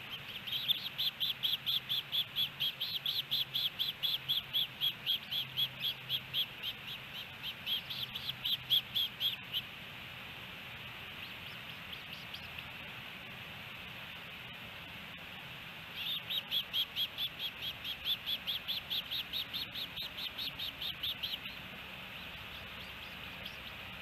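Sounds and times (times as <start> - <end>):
osprey whistled chirps: 0.0 - 9.7, 11.2 - 12.6, 15.9 - 23.9
steady hiss: 0.0 - 24.0.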